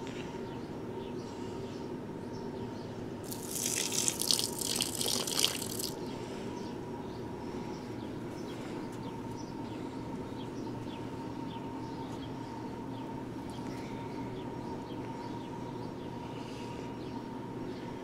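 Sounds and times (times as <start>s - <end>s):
water pouring onto plants: 3.2s - 6.0s.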